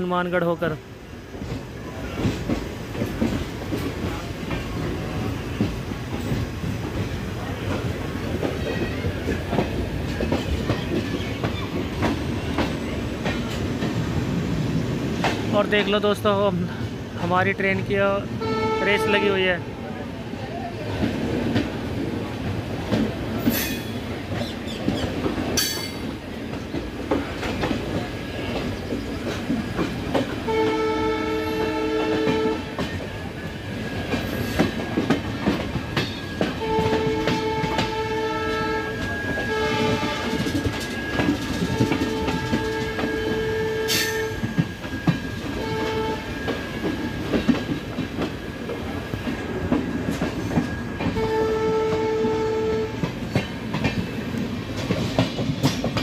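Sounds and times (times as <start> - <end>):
train running rumble: 0.0 - 56.0
locomotive horn blasts: 18.4 - 19.3, 30.5 - 32.7, 36.6 - 40.6, 41.6 - 44.5, 45.6 - 46.4, 51.2 - 53.0.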